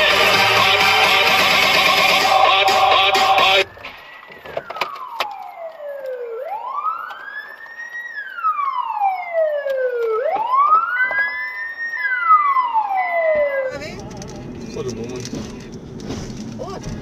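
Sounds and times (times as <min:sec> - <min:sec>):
emergency siren wailing: 0:00.0 - 0:16.0.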